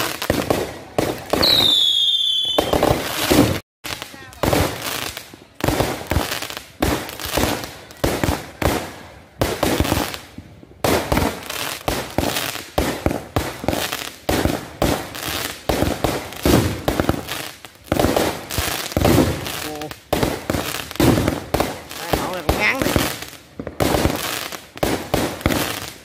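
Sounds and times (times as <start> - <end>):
fireworks bangs: 0.0 - 26.0.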